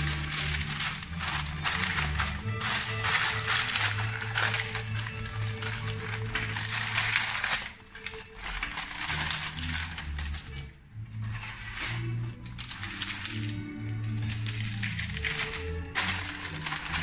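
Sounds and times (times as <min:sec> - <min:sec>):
baking paper crinkling: 0:00.0 - 0:17.0.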